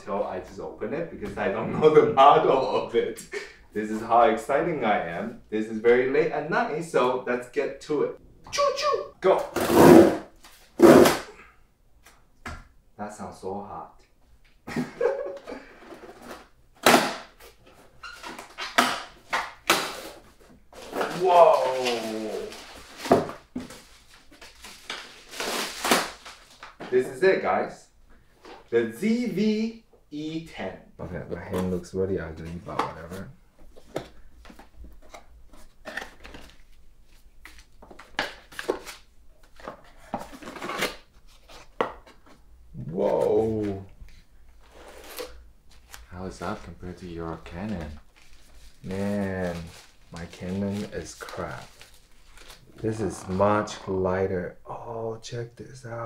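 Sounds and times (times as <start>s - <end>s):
cardboard box tape ripping: 10.8s - 11.3s, 24.9s - 26.6s
cardboard crinkling: 44.6s - 53.5s.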